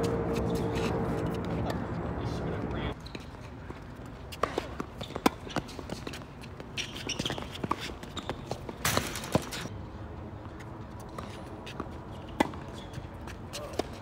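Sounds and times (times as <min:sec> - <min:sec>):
footsteps: 0:00.0 - 0:03.6.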